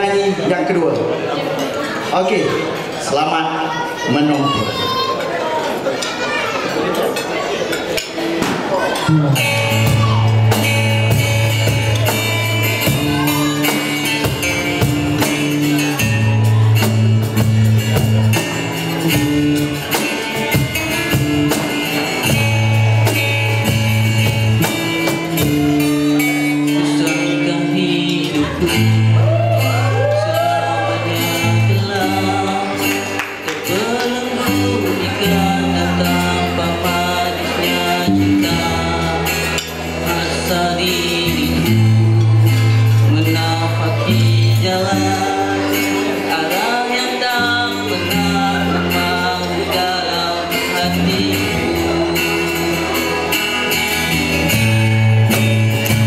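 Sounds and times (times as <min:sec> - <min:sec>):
acoustic guitars playing: 0:00.0 - 0:56.0
cajon beat: 0:08.1 - 0:56.0
man singing: 0:19.0 - 0:56.0.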